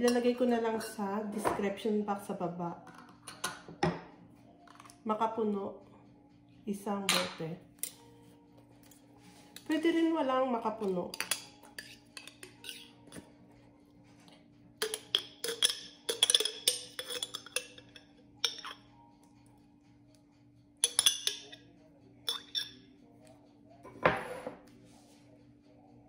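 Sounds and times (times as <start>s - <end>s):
metal spoon clinking on glass: 11.1s - 12.9s, 14.8s - 18.9s, 20.8s - 21.6s, 22.3s - 22.8s.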